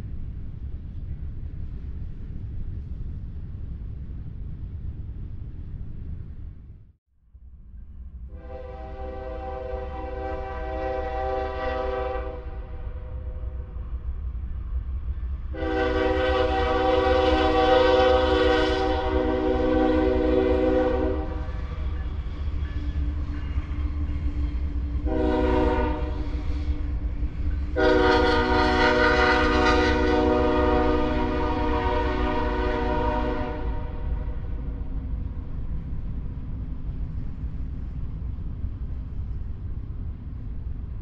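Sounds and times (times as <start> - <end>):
locomotive air horn blasts: 8.3 - 12.8, 15.5 - 21.6, 25.0 - 26.3, 27.8 - 34.5.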